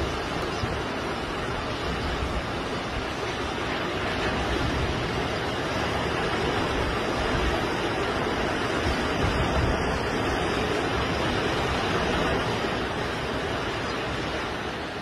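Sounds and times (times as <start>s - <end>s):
surf breaking on beach: 0.0s - 15.0s
wind on microphone: 0.0s - 15.0s.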